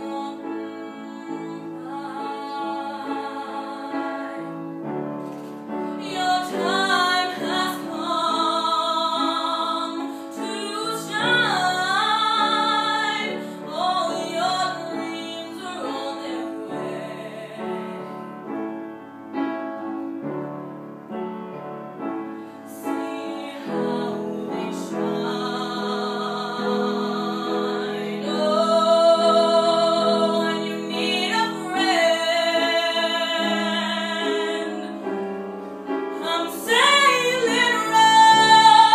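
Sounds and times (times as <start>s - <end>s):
woman singing with vibrato: 0.0s - 4.5s, 6.0s - 18.1s, 22.7s - 35.0s, 36.2s - 38.9s
piano accompaniment: 0.0s - 38.9s.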